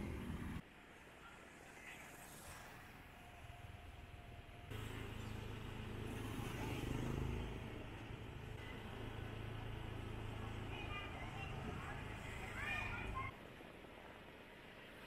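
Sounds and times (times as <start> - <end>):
street din: 3.2 - 13.3
motor vehicle engine running: 4.5 - 13.3.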